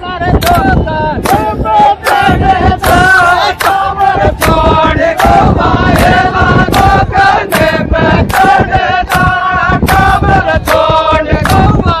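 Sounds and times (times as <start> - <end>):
loud rhythmic chanting voices: 0.0 - 12.0.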